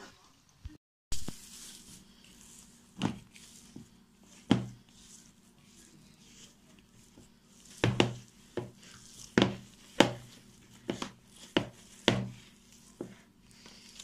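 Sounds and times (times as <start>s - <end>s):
dull thumps of kneaded dough: 2.9s - 4.9s, 7.0s - 13.7s.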